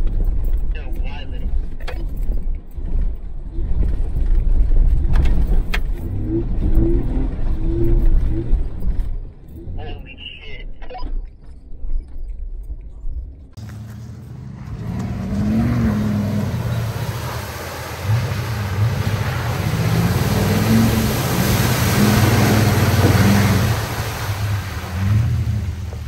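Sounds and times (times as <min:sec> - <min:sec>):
engine revving under load: 0:13.6 - 0:26.0
wheels spraying through mud: 0:13.6 - 0:26.0.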